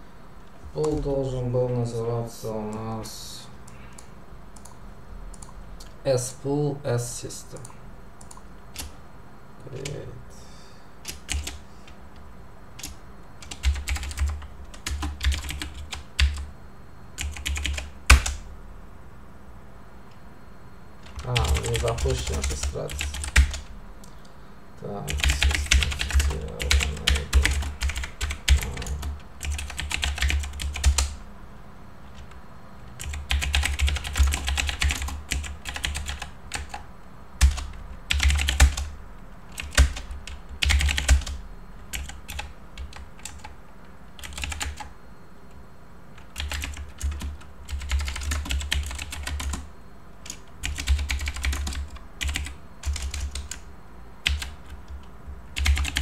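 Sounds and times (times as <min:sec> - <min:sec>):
fast typing on keyboard: 0:11.1 - 0:11.6, 0:12.8 - 0:16.5, 0:17.2 - 0:18.4, 0:21.0 - 0:23.7, 0:25.0 - 0:31.2, 0:33.0 - 0:38.9, 0:39.5 - 0:43.6, 0:44.2 - 0:44.9, 0:46.2 - 0:53.6, 0:54.2 - 0:56.0.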